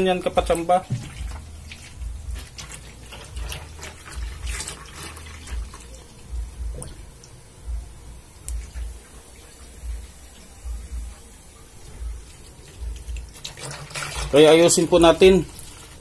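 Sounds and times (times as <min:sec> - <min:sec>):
water splashing in washing machine: 0:00.0 - 0:07.3, 0:12.0 - 0:16.0
dull low thumps: 0:00.8 - 0:02.5, 0:06.3 - 0:09.0, 0:09.8 - 0:11.2, 0:12.0 - 0:13.3.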